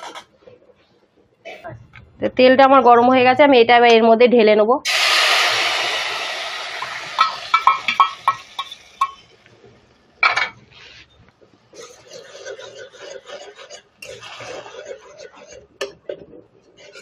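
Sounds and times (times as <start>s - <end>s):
spatula scraping wok: 4.9s - 9.4s, 11.7s - 17.0s
chutney sizzling in oil: 4.9s - 9.5s
bowl tapping against pan: 7.2s - 9.2s.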